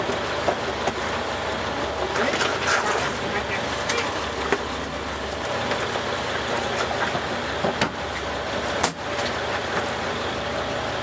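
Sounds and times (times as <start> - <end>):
boat engine running: 0.0 - 11.0
wind: 0.0 - 11.0.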